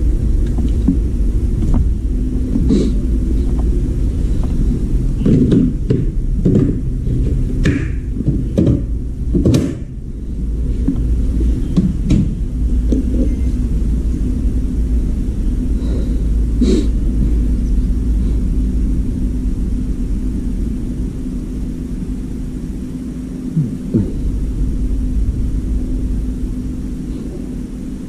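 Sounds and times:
washer-dryer humming and rumbling: 0:00.0 - 0:28.0
knocks: 0:05.2 - 0:09.9.

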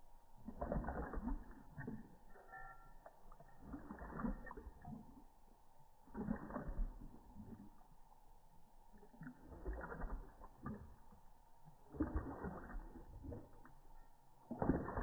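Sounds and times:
dog lapping water from metal bowl: 0:00.0 - 0:15.0.

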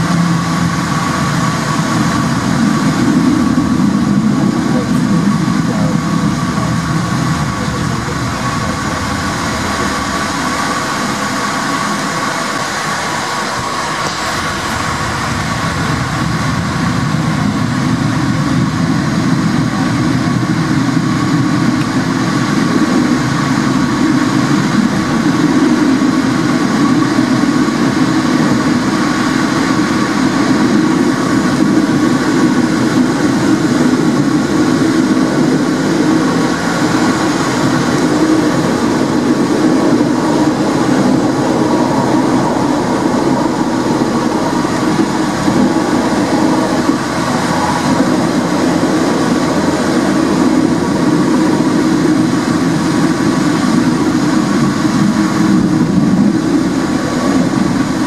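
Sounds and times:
tram wheels rumbling on rails: 0:00.0 - 0:58.0
steady thin tone: 0:40.3 - 0:51.5.

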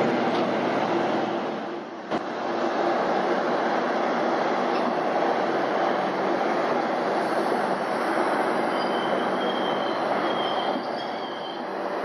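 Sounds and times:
diesel train rumbling: 0:00.0 - 0:12.0
high wheel squeals: 0:08.6 - 0:11.7.

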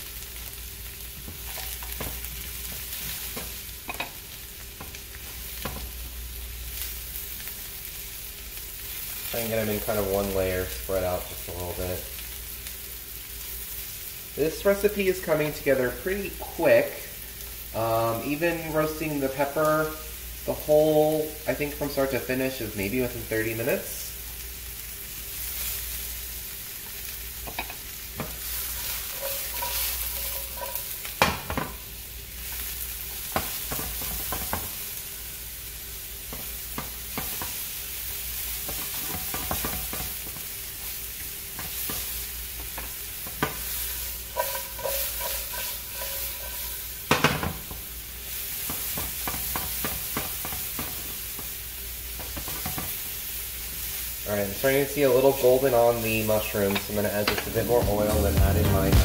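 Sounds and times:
mushrooms sizzling in oil: 0:00.0 - 0:59.0
spatula scraping pan: 0:27.5 - 0:31.8, 0:41.5 - 0:47.6
spatula knocking against pan: 0:38.7 - 0:40.2.

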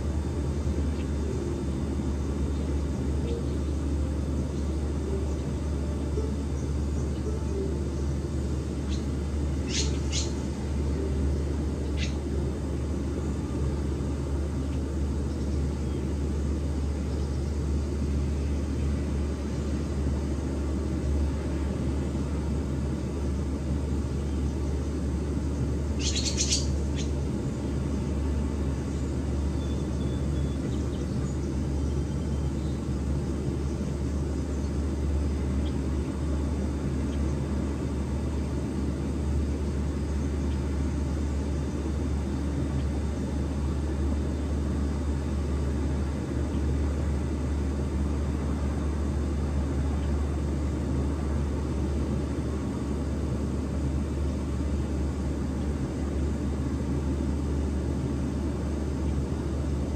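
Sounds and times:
swallows chirping: 0:08.8 - 0:10.4, 0:26.0 - 0:27.2.

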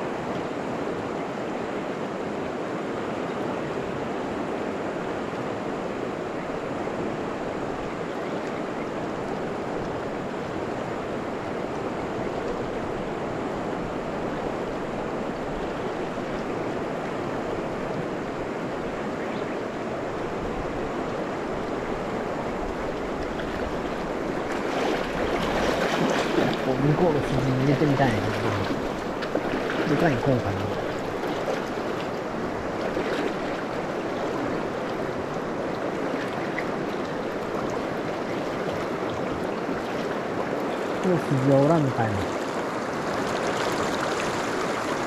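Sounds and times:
water rushing over stones: 0:22.2 - 0:45.0.

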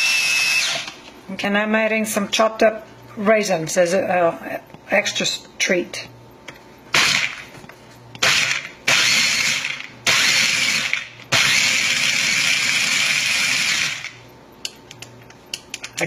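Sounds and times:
food chopper motor whirring: 0:00.0 - 0:01.0, 0:07.0 - 0:07.4, 0:08.2 - 0:14.2.

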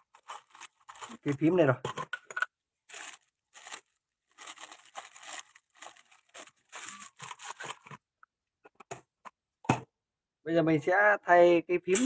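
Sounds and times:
plastic bag crinkling and rustling: 0:00.0 - 0:01.8, 0:02.8 - 0:08.0.

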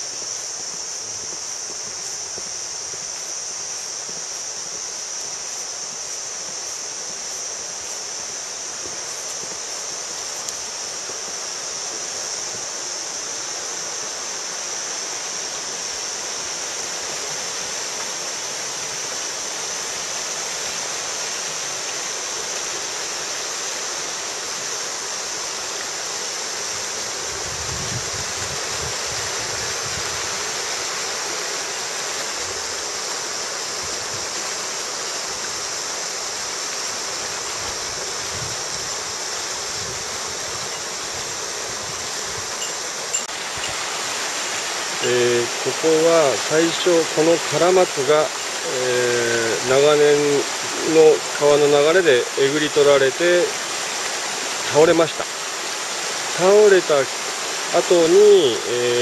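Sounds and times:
stream rushing over rocks: 0:00.0 - 0:59.0.

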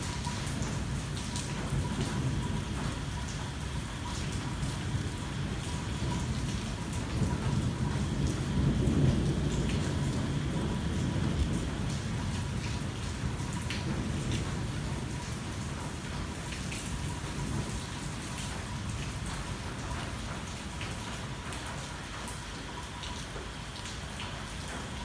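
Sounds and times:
rain on a car roof: 0:00.0 - 0:25.0
low thunder roll: 0:04.5 - 0:16.0.

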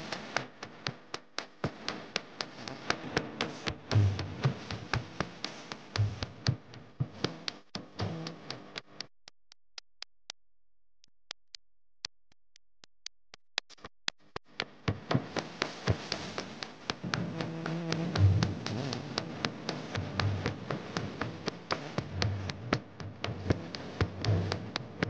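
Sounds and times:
music: 0:00.0 - 0:08.9, 0:14.5 - 0:25.0
sharp percussive clicks: 0:00.1 - 0:10.4.

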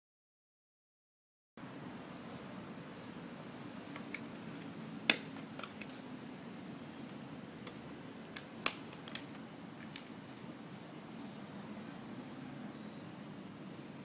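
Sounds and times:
steady low hum: 0:01.6 - 0:14.0
handling clicks and knocks: 0:03.9 - 0:06.0, 0:07.6 - 0:10.1.

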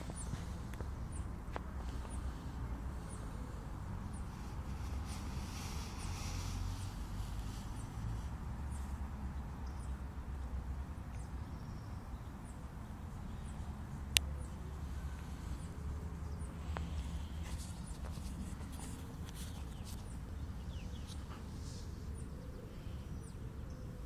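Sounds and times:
steady low rumble: 0:00.0 - 0:12.0.

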